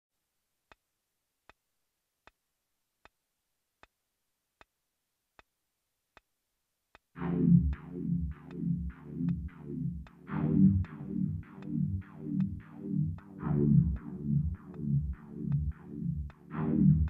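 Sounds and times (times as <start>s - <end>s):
pulsing synth bass: 7.2s - 17.0s.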